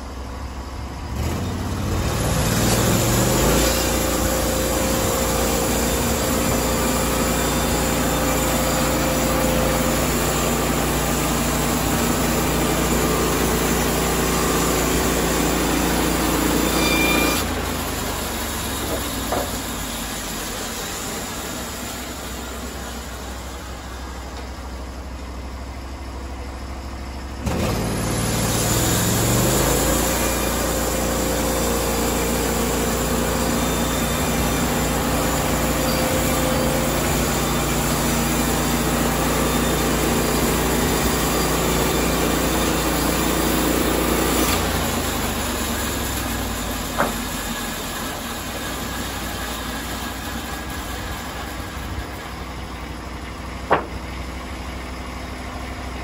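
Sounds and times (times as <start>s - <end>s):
sawmill engine running: 0.0s - 56.0s
band blade cutting log: 2.1s - 18.0s, 18.6s - 20.2s, 27.5s - 45.2s, 46.1s - 47.4s, 53.7s - 54.0s
sharp knocks: 18.8s - 19.6s, 47.0s - 47.3s, 53.6s - 54.1s.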